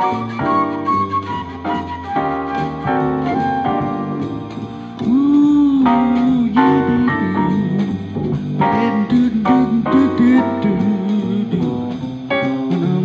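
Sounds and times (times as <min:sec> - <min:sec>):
harmonica playing blues: 0:00.0 - 0:05.7
jazz blues backing track: 0:00.0 - 0:13.0.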